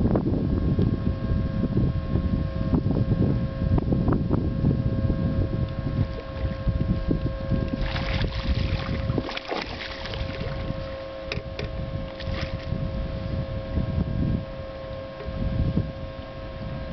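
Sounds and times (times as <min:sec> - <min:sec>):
steady hum: 0:00.0 - 0:16.9
wind rumbling on microphone: 0:00.0 - 0:16.9
fish splashing at surface: 0:07.8 - 0:10.7.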